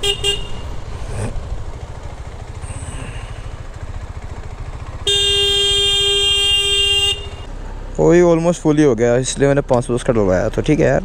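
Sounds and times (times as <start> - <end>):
vehicle horn: 0.0 - 0.8, 4.8 - 7.5
motorcycle engine running at low revs: 0.0 - 7.6.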